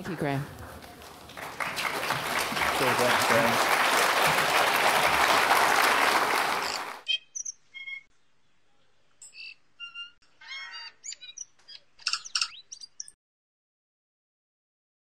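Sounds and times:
audience applause: 0.7 - 7.0
birdsong chirps: 6.6 - 13.2.

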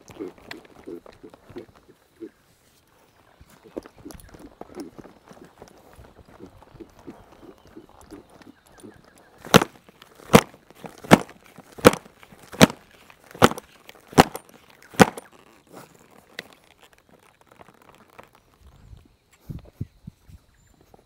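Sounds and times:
hand slapping a horse: 9.4 - 12.8, 13.4 - 14.4, 15.0 - 15.2.

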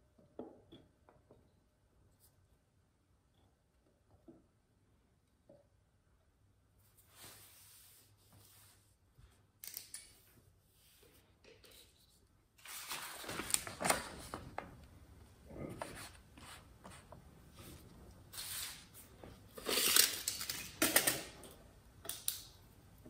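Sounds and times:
paper rustling: 12.0 - 14.7.

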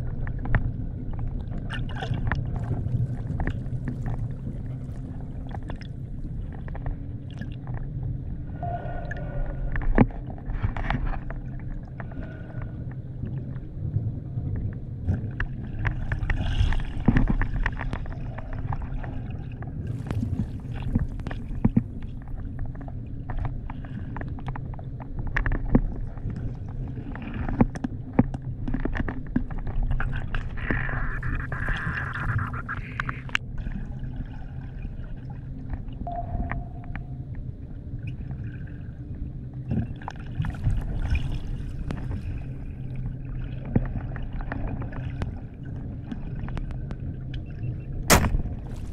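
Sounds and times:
low underwater rumble: 0.0 - 48.9
bubbles gurgling: 29.8 - 46.9.

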